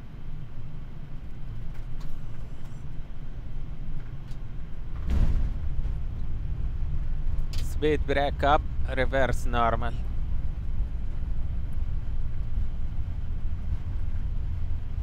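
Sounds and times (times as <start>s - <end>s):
aircraft cockpit rumble: 0.0s - 15.0s
landing gear touchdown thump: 4.9s - 6.3s.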